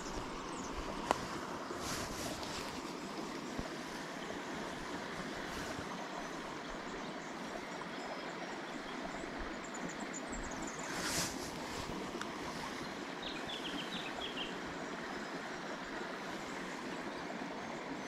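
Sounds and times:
creek water flowing: 0.0s - 18.0s
jacket sleeve rustle: 10.8s - 12.1s.

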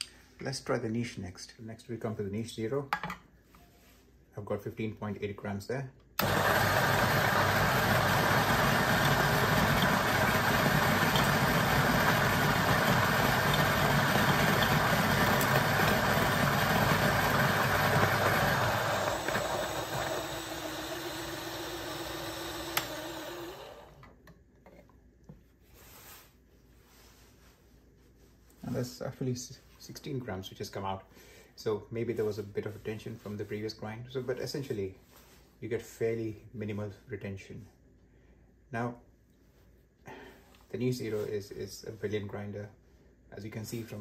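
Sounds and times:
coffee grinder grinding beans: 6.2s - 24.0s.

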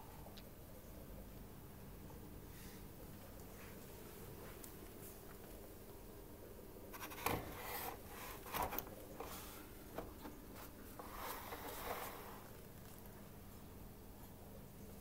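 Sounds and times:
paper rustling against plastic: 6.9s - 13.1s.

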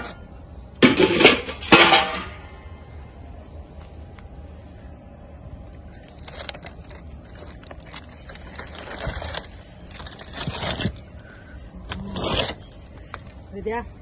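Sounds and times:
aluminium foil crinkling: 5.7s - 13.8s.

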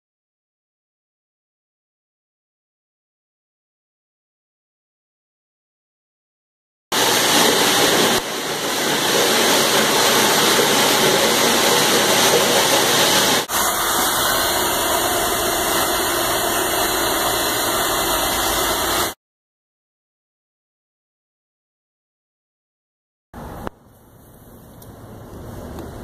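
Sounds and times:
floor grinder grinding concrete: 6.9s - 19.2s
steady machine noise: 6.9s - 19.2s.

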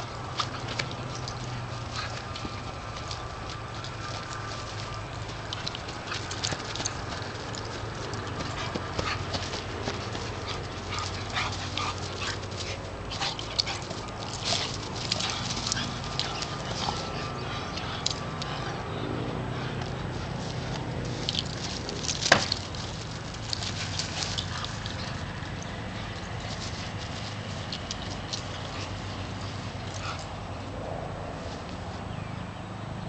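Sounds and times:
sharp clicks and knocks: 20.7s - 25.0s.

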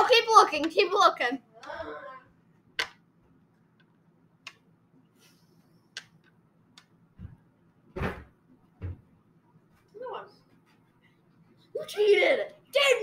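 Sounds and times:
dice clicking on wooden table: 2.8s - 3.0s
thump: 8.0s - 9.1s.

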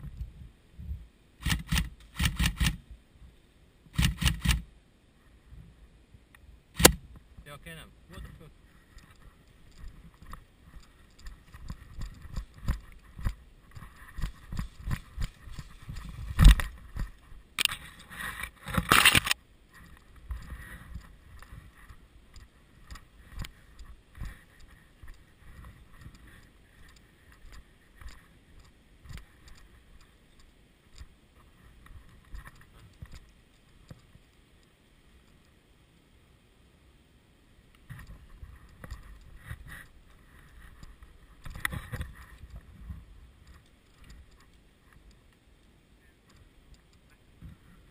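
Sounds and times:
footsteps on dirt and grass: 9.1s - 22.5s.

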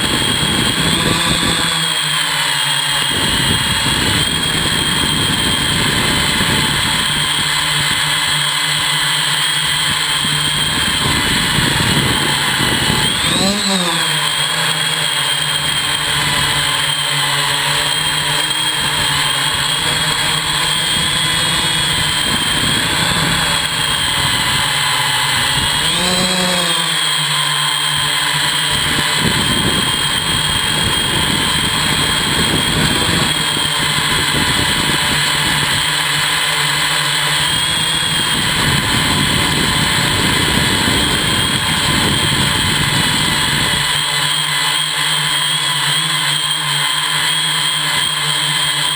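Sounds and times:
drone motors whining: 0.0s - 48.9s
rough rushing noise: 9.4s - 35.8s.

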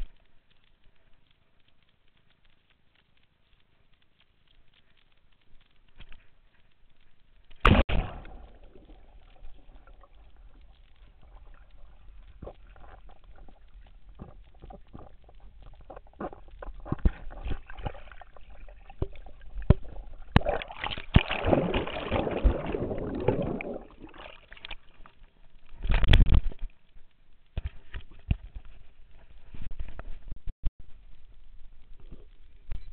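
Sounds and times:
underwater clicks: 7.0s - 28.8s
churning water: 7.6s - 25.1s
muffled underwater bubbles: 7.6s - 26.2s.

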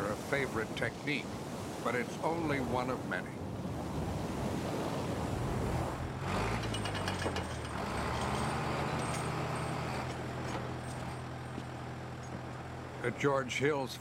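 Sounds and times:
bulldozer diesel engine running: 6.0s - 13.6s
light metallic clinks: 6.6s - 11.6s.

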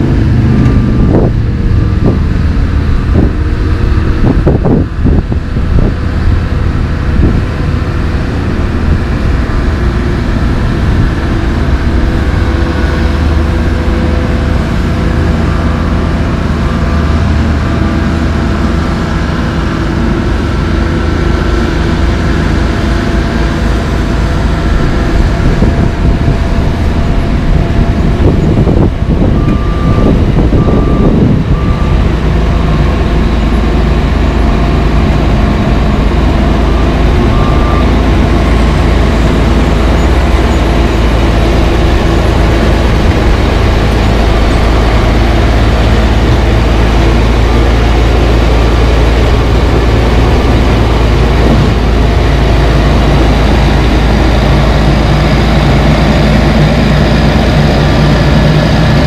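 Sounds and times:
backup alarm beeping: 0.0s - 2.2s, 28.3s - 34.2s, 36.3s - 54.2s
diesel engine running: 0.0s - 59.0s.

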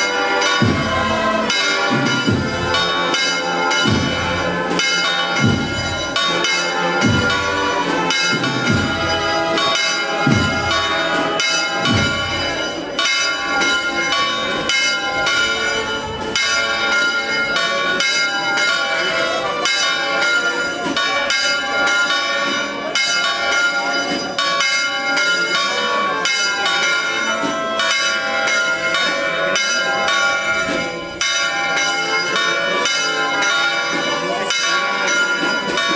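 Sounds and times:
church bells ringing: 0.0s - 35.9s
deep bell strike: 0.5s - 15.8s.

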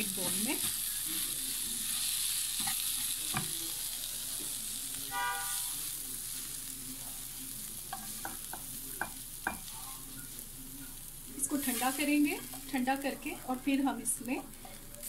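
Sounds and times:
food sizzling in a frying pan: 0.0s - 15.0s.

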